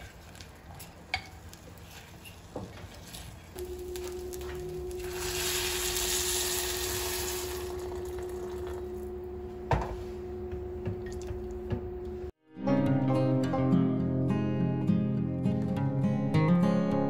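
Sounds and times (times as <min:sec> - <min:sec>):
steady low hum: 0:03.6 - 0:12.4
boiling water poured into pot: 0:03.8 - 0:09.1
water hissing on hot pan: 0:04.9 - 0:08.6.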